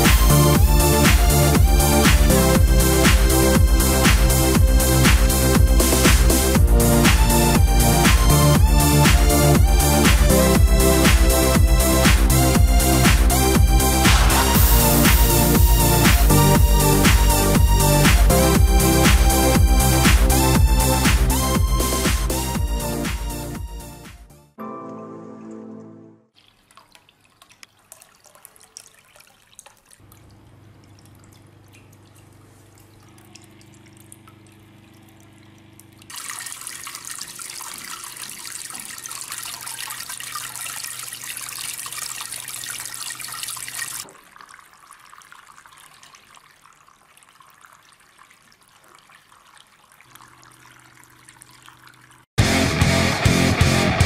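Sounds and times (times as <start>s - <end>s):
water trickling and splashing: 26.3s - 52.3s.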